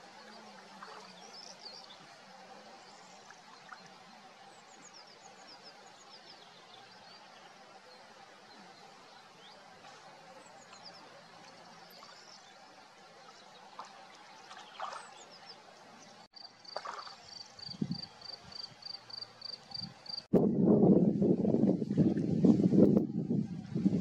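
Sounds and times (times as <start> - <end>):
water splashing and lapping: 0.0 - 19.8
quiet natural ambience: 0.0 - 24.0
wind rush on microphone: 17.6 - 18.8, 19.7 - 24.0.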